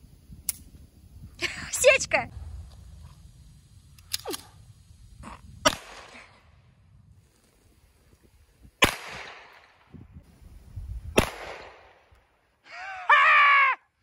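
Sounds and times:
pistol shots: 5.6s - 6.2s, 8.8s - 9.8s, 11.2s - 12.0s
person crying out loudly: 12.7s - 13.9s.

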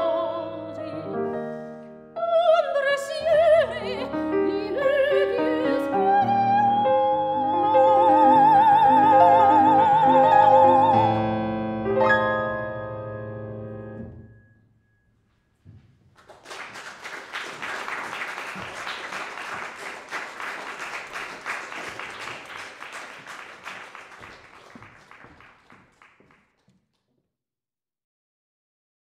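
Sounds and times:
soprano singing: 0.0s - 12.7s
grand piano: 0.0s - 16.8s
audience applause: 16.2s - 26.8s.

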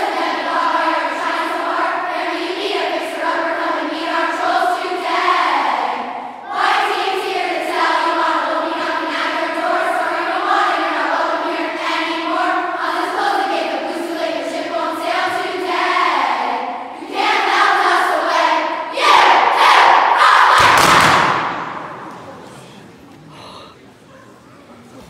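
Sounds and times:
girls singing a march: 0.0s - 22.1s
group shouting: 18.9s - 21.9s
thud: 20.5s - 22.3s.

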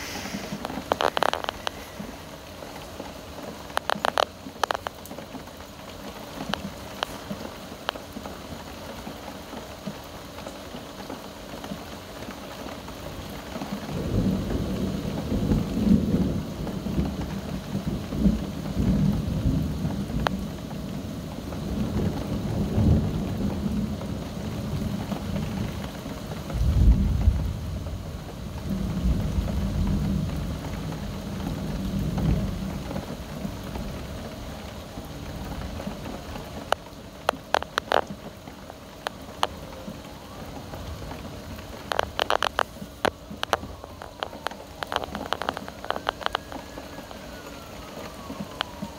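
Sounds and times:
thunder rolling: 0.0s - 2.4s, 40.8s - 48.9s
steady rain: 0.0s - 48.9s
sharp clicks: 0.5s - 1.8s, 3.7s - 5.0s, 36.7s - 38.1s, 41.9s - 46.6s.

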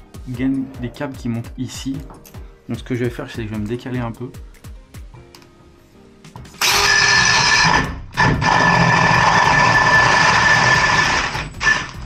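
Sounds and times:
power drill cutting plasterboard: 6.6s - 12.0s.

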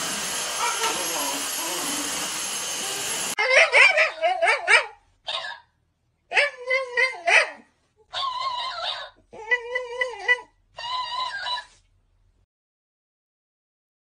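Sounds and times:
vacuum cleaner running: 0.0s - 3.4s
dog barking and yowling: 0.4s - 5.7s, 6.3s - 11.8s.

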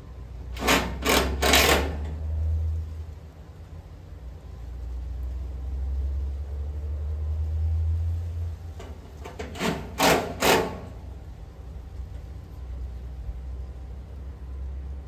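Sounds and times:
low steady rumble: 0.0s - 15.0s
loud clattering: 8.8s - 11.0s.

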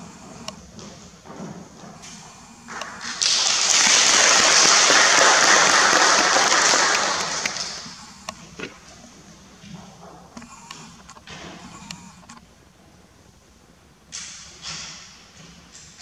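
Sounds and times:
audience applauding: 2.8s - 8.2s.

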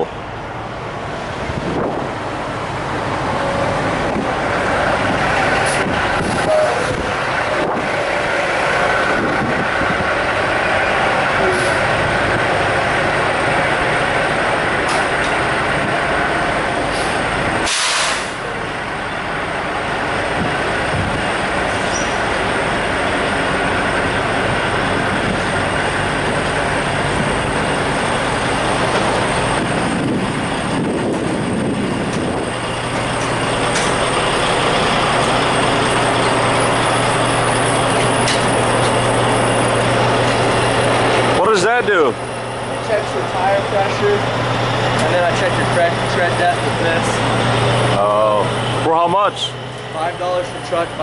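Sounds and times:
diesel truck engines rumbling: 0.0s - 51.0s
low engine hum: 0.0s - 51.0s
burst of hiss: 17.0s - 18.4s.

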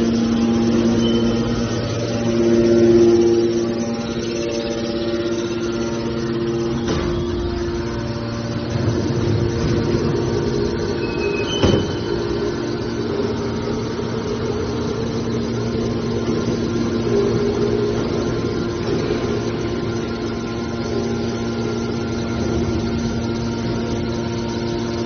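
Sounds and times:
electric motor and pump humming: 0.0s - 25.0s
high squeak: 0.4s - 8.1s, 10.5s - 12.7s.

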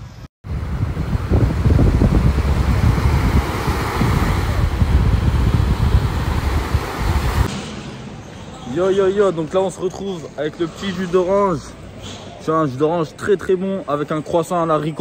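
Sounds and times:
wind buffeting microphone: 0.4s - 7.5s
small waves breaking on shore: 0.5s - 7.5s.

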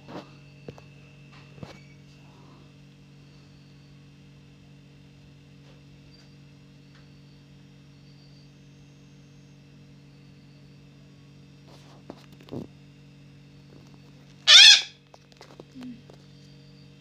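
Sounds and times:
electrical hum: 0.0s - 17.0s
parakeet squawk: 14.4s - 15.0s.

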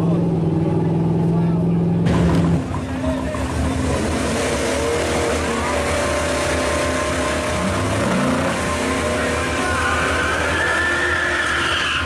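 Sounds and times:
car engine revving hard: 3.5s - 12.0s.

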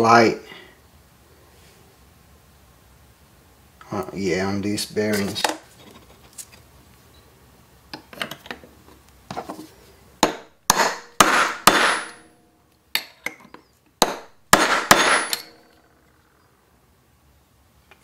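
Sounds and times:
hammer tapping metal punch: 10.2s - 12.3s, 13.0s - 15.7s.

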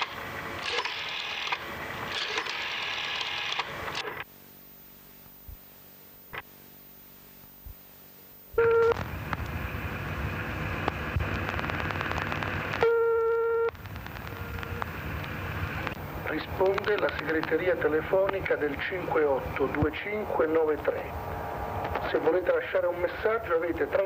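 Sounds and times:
hissing line noise: 8.5s - 24.0s
telephone ringing tone: 8.6s - 9.0s, 12.8s - 14.8s
faint clicks: 10.8s - 18.4s.

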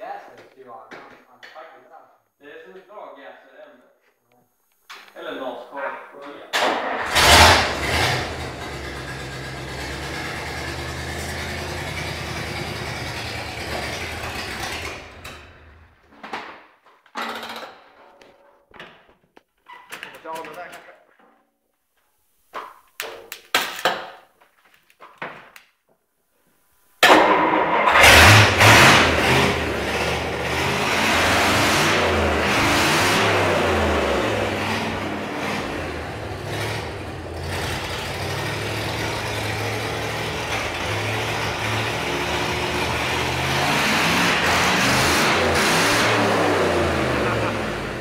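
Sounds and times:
car engine starting and revving: 6.6s - 16.0s, 27.0s - 48.0s.

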